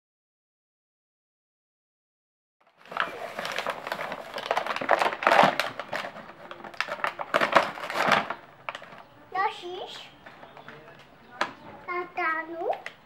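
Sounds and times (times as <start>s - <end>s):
plastic blister pack crinkling: 2.6s - 9.1s
cardboard packaging tearing: 2.7s - 9.0s.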